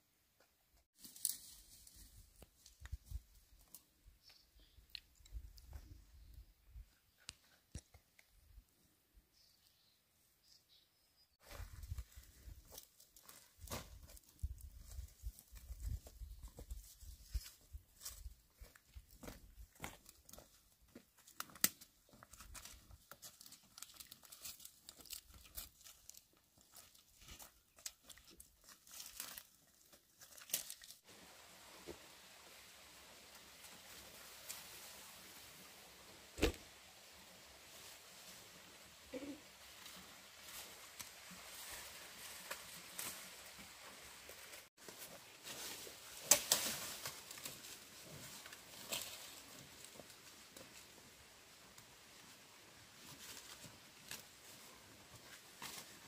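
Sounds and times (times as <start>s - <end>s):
twigs and leaves crunching underfoot: 1.0s - 6.0s, 11.4s - 32.4s, 36.3s - 56.0s
sharp cracks of bamboo: 46.2s - 47.2s.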